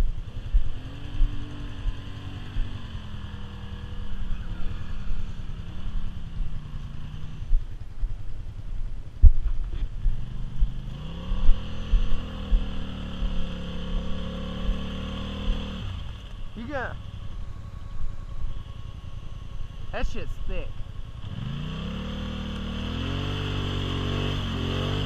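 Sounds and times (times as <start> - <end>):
engine revving through mud: 0.0 - 7.6, 10.1 - 16.9, 21.2 - 25.0
low thumps: 5.8 - 16.5.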